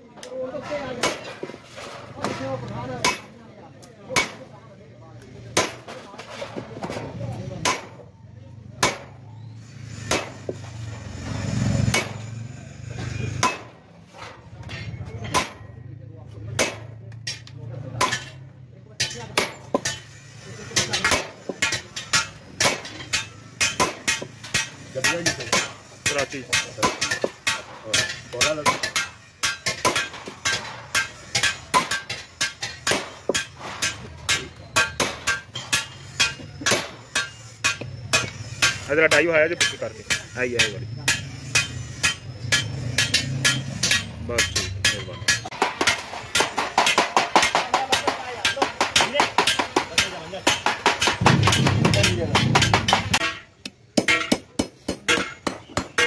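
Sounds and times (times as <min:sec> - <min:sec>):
hammer tapping metal punch: 0:20.8 - 0:56.0.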